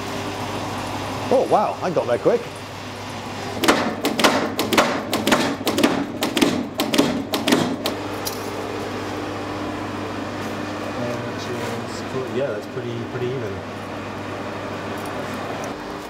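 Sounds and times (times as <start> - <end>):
steady hum: 0.0 - 16.0
power hammer striking hot steel: 3.6 - 8.0.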